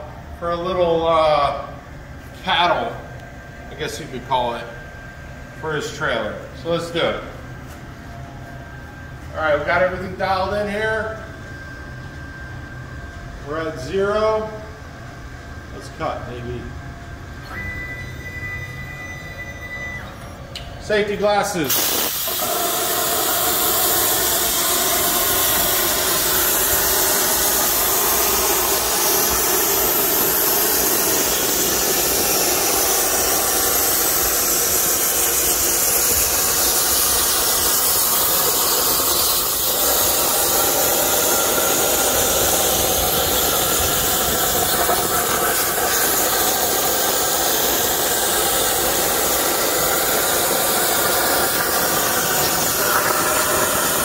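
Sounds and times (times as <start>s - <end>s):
plasma torch hissing: 21.5s - 54.0s.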